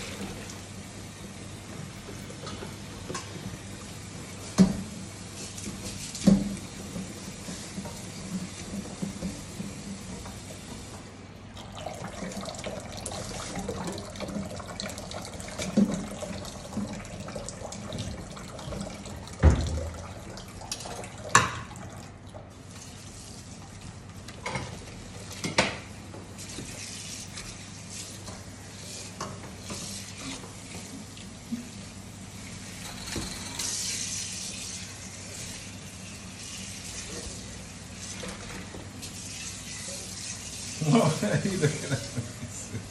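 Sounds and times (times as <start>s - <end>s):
tap running into sink: 4.4s - 5.0s, 5.6s - 11.1s, 15.5s - 21.8s.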